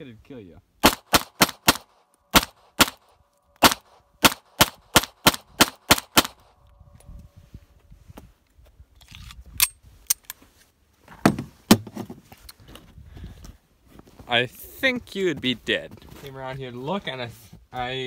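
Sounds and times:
pistol shots: 0.8 - 6.5.

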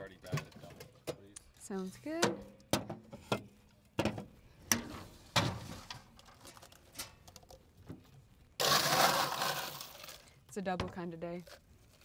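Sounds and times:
small handling sounds: 4.8 - 8.6, 9.8 - 12.0
ice rattling in cooler: 8.6 - 10.4.

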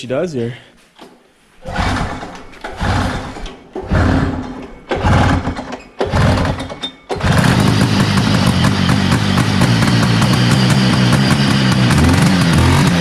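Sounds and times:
recoil starter pulls: 1.6 - 13.0
snowmobile engine running: 7.2 - 13.0.

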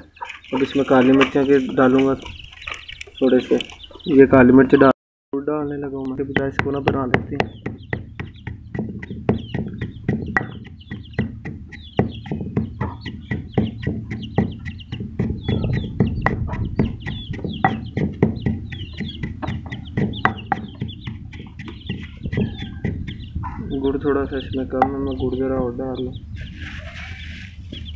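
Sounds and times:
chickens clucking: 0.0 - 27.9
pestle pounding in stone mortar: 6.2 - 23.4.

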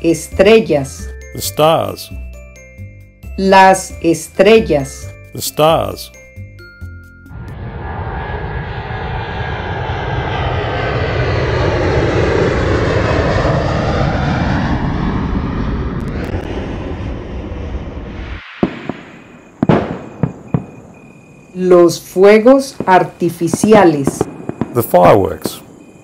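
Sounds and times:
airliner flying past: 7.3 - 21.6.

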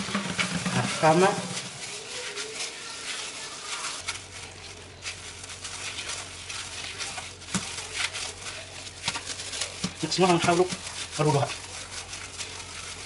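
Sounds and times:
hands kneading dough: 0.0 - 13.0
plastic gloves rustling: 0.0 - 13.0.

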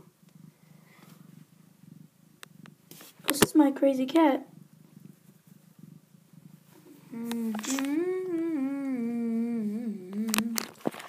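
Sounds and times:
person humming: 7.0 - 10.8.

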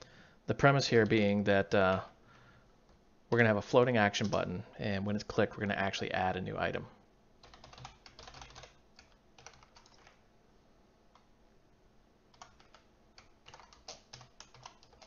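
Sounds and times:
faint keyboard typing: 0.9 - 2.2, 4.1 - 4.6, 7.4 - 10.2, 11.1 - 11.3, 12.3 - 15.0.

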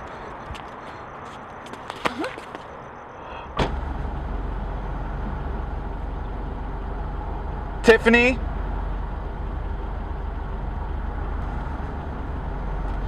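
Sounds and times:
sharp thud: 3.6 - 3.9
car engine idling: 3.6 - 13.0.

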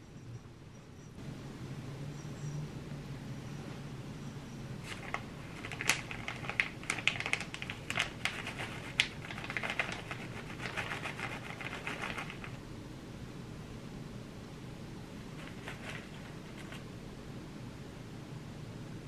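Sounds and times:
plastic bag crinkling: 4.9 - 12.6, 15.4 - 16.8.

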